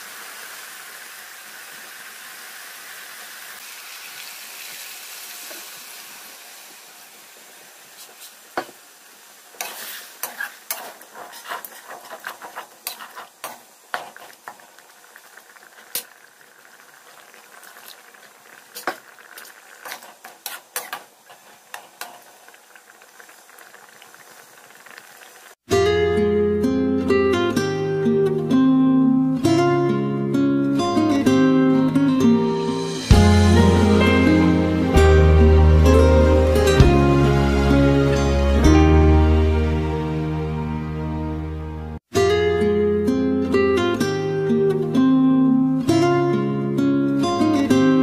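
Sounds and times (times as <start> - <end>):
curry sizzling in a metal pan: 0.0 - 25.6
metal spoon scraping a pan: 9.6 - 14.9, 18.7 - 22.5.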